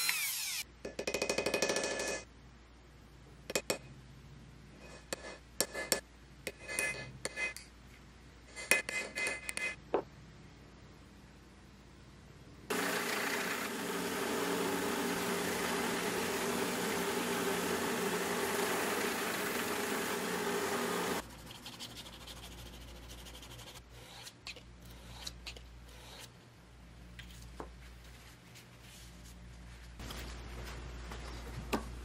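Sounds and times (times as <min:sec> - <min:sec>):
belt grinder grinding blade: 0:00.0 - 0:00.6, 0:12.7 - 0:21.2.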